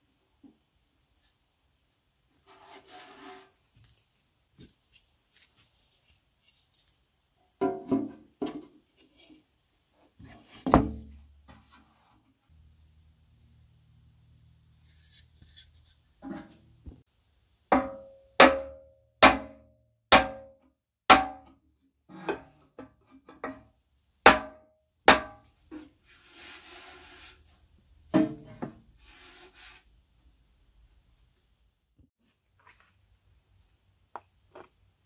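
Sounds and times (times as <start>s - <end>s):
sharp knocks on sheet-metal drum: 17.7s - 20.5s, 21.1s - 21.5s.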